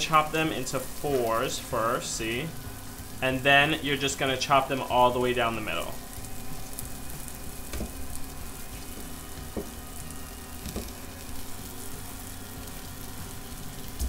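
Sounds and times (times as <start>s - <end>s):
cakes sizzling in a pan: 0.0s - 14.0s.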